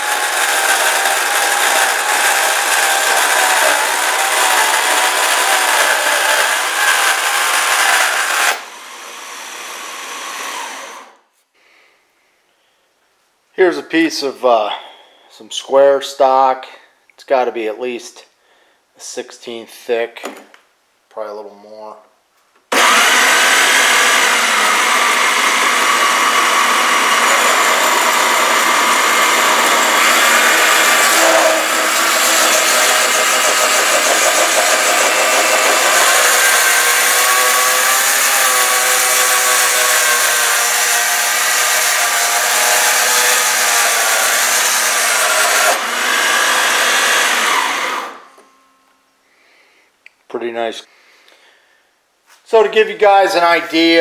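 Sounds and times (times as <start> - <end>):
bandsaw screeching through steel: 0.0 - 11.2, 22.7 - 48.3.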